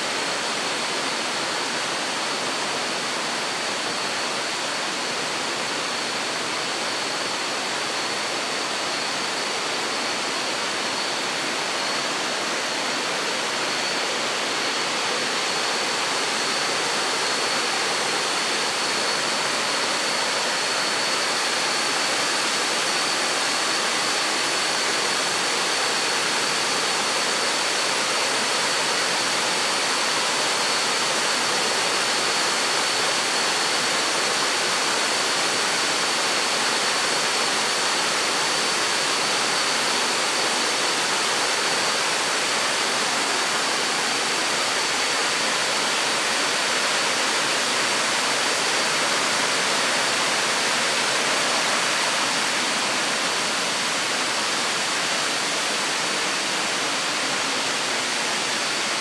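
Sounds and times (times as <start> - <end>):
thin high-pitched whine: 0.0 - 59.0
waterfall rushing: 0.0 - 59.0.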